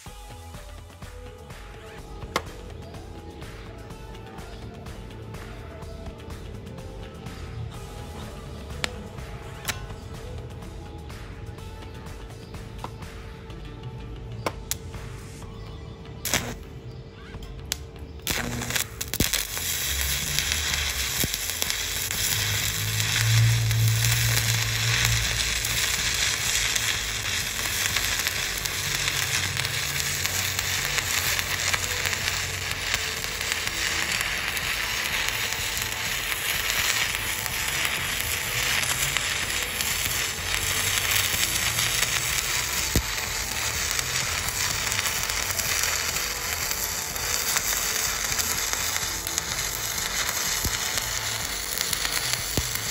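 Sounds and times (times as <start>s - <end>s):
welding arc crackling and sizzling: 0.0s - 4.6s, 5.2s - 11.7s, 16.2s - 52.9s.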